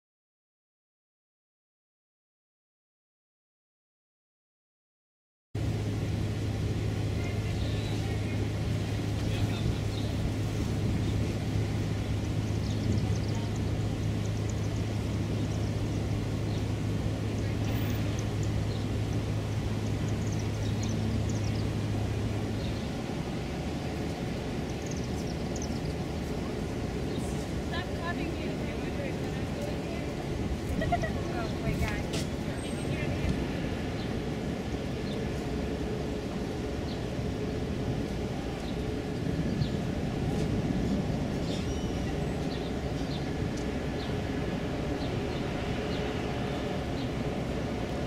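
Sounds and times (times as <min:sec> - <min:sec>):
diesel engine drone: 0:05.6 - 0:48.0
small birds chirping: 0:07.2 - 0:35.8, 0:40.6 - 0:48.0.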